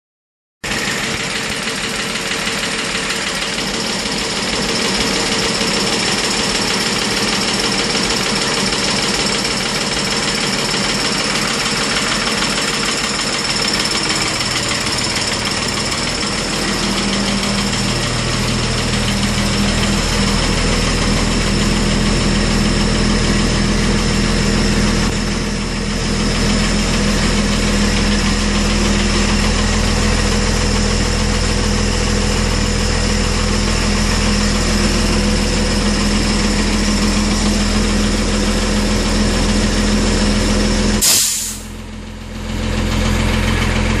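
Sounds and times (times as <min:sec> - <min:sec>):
diesel engine idling: 0:00.6 - 0:44.0
compressed air blast: 0:41.0 - 0:41.8.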